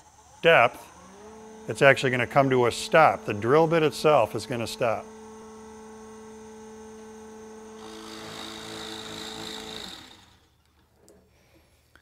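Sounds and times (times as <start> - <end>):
drill press motor hum: 0.0 - 11.2
drill bit rasping into wood: 1.5 - 10.6.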